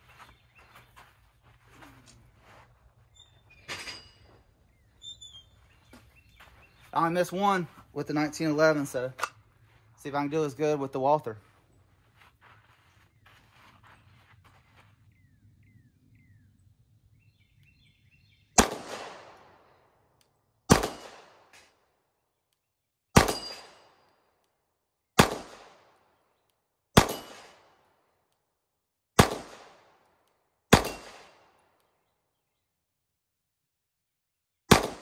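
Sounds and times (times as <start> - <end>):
pistol shots with echo: 18.6 - 19.8, 20.7 - 21.6, 23.2 - 24.0, 25.2 - 26.0, 27.0 - 27.9, 29.2 - 30.0, 30.7 - 31.7, 34.7 - 35.0.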